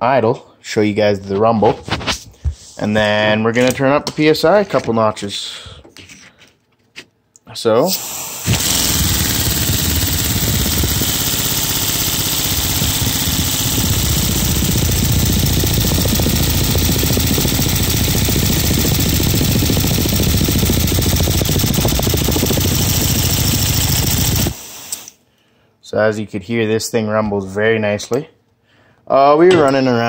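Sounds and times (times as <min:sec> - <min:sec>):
hiss of exhausting air: 0:07.9 - 0:08.6
pneumatic engine rapid rumble: 0:07.9 - 0:25.2.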